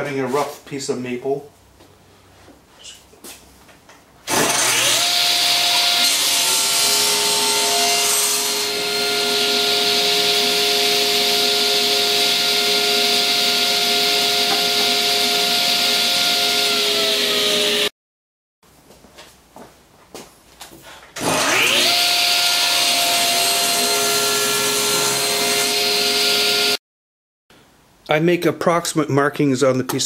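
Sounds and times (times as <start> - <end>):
saw blade cutting wood: 4.3 - 17.9, 21.2 - 26.8
table saw motor running: 4.3 - 17.9, 21.2 - 26.8.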